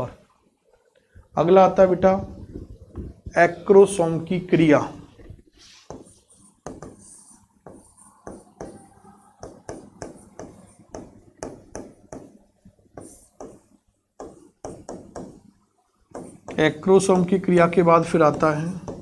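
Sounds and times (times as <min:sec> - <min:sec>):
marker pen on whiteboard: 0:01.8 - 0:19.0.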